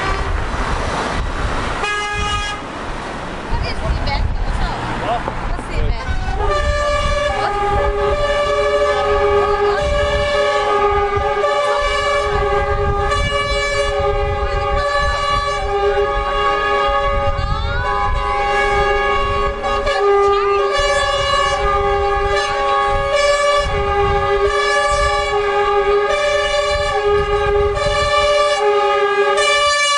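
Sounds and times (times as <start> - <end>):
truck air horns blaring: 0.0 - 0.6, 1.7 - 2.7, 5.7 - 29.9
engines rumbling: 0.0 - 29.9.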